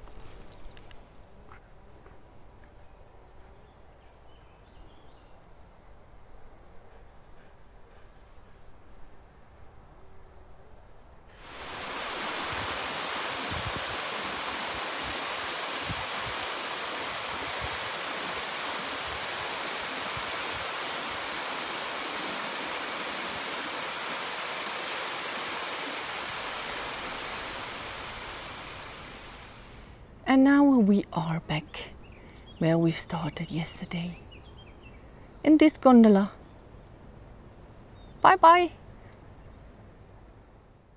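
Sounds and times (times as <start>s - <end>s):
waterfall rushing over rock: 11.4s - 29.9s.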